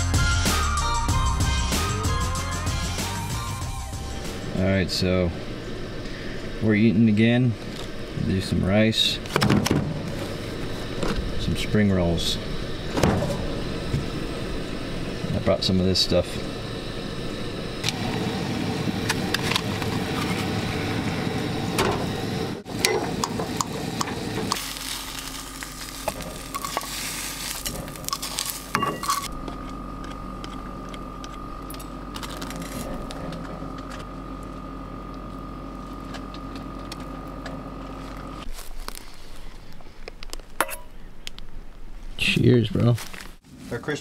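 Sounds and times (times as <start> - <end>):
steady hum: 0.0 - 44.0
food sizzling in a pan: 24.6 - 28.8
utensils clinking and scraping: 26.0 - 29.4.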